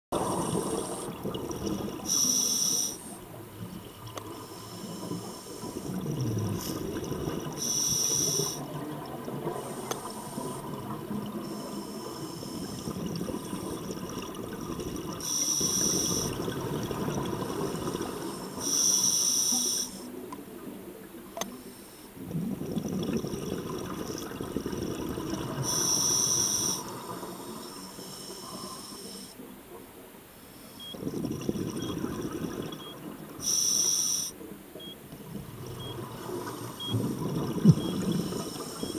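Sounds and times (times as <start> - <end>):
regulator inhale hiss: 0.2 - 1.2, 2.0 - 3.3, 4.3 - 6.0, 7.6 - 8.7, 9.6 - 10.7, 11.4 - 13.8, 15.2 - 16.4, 17.7 - 20.2, 21.5 - 22.2, 25.6 - 29.5, 33.4 - 34.4, 38.2 - 38.9
bubbling exhale underwater: 0.2 - 2.2, 5.6 - 11.6, 22.2 - 27.0, 31.0 - 33.4, 35.4 - 38.9.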